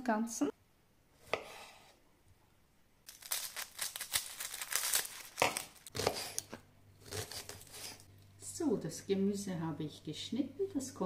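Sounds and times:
knife cutting on wooden board: 1.2 - 2.0, 5.4 - 8.0.

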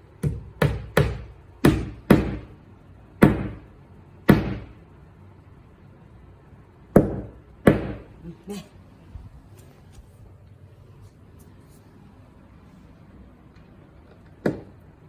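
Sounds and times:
hammer driving nail into wall: 0.2 - 2.5, 4.3 - 4.7.

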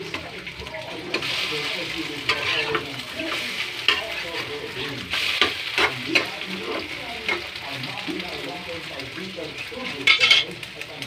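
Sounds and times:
metal spoon scraping pan: 0.0 - 7.6, 9.6 - 10.6
eggs sizzling in frying pan: 0.0 - 11.0.

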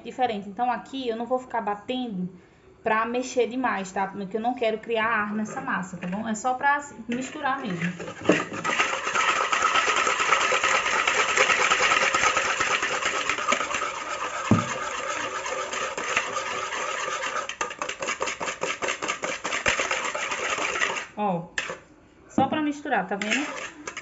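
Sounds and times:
whisk scraping plastic bowl: 7.1 - 21.9, 23.1 - 24.0.

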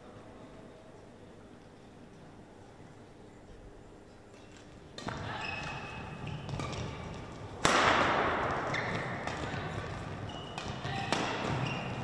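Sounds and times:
shoes squeaking on court floor: 4.4 - 7.6, 8.5 - 12.0
shuttlecock hits: 7.6 - 9.4.

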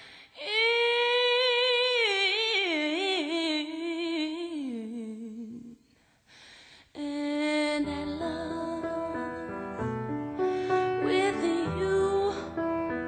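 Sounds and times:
woman singing unaccompanied: 0.4 - 5.9, 7.0 - 9.8, 10.9 - 13.0.

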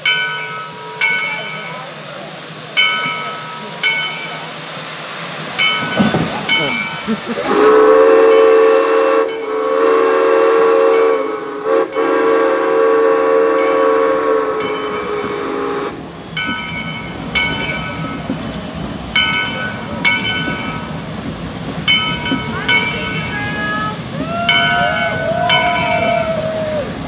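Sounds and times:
steam whistle blast: 7.4 - 16.0.

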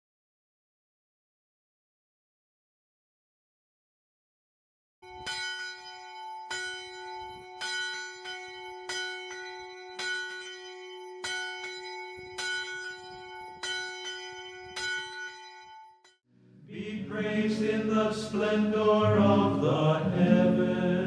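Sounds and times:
bell tolling: 5.0 - 16.0.

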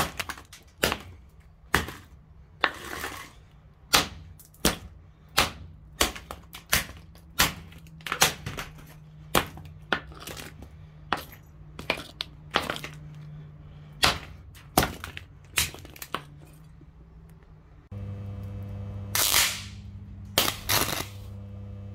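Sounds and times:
metal pole smashing plastic: 0.0 - 10.5.

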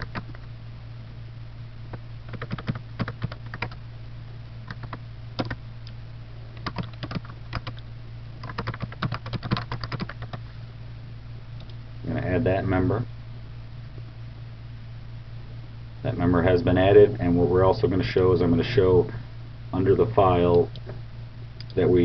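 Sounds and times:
computer keyboard typing: 0.0 - 0.4, 2.3 - 3.8, 4.7 - 5.6, 6.6 - 7.8, 8.4 - 10.4
steady low hum: 0.0 - 22.0.

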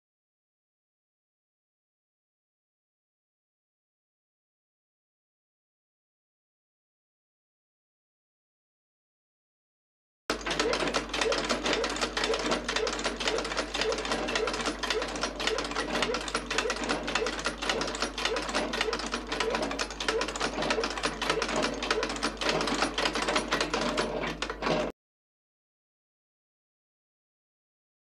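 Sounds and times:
sewing machine clattering: 10.3 - 24.9.

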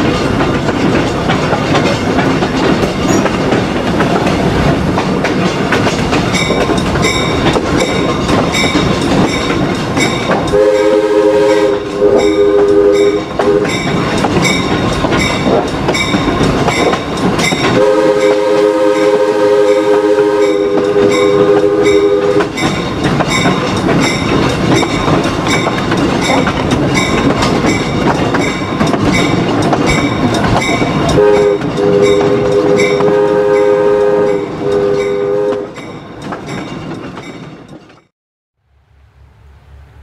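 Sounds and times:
train wheels clickety-clack: 0.0 - 38.1
train air horn chord: 10.5 - 13.7, 17.8 - 22.5, 31.2 - 35.8.

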